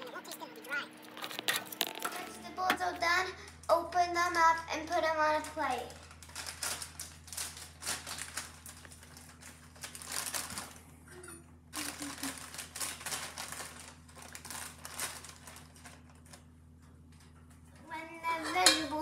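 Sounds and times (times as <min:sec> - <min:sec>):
plastic bag crinkling: 0:05.4 - 0:10.8, 0:11.8 - 0:16.5.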